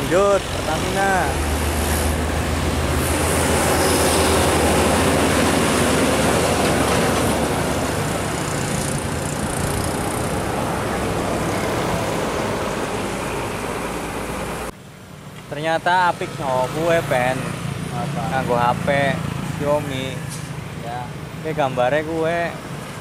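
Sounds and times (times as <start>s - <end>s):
truck passing by: 0.0s - 15.2s, 16.1s - 23.0s.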